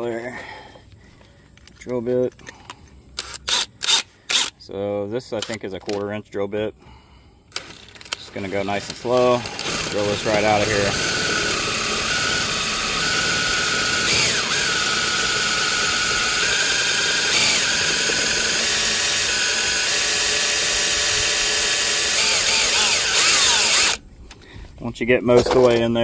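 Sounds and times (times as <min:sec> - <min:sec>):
cordless drill drilling metal: 0:03.2 - 0:04.6, 0:07.5 - 0:24.0.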